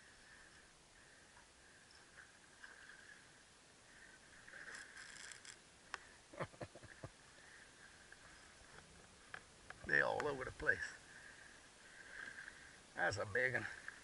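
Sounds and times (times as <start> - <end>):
fishing reel being cranked: 4.7 - 5.6.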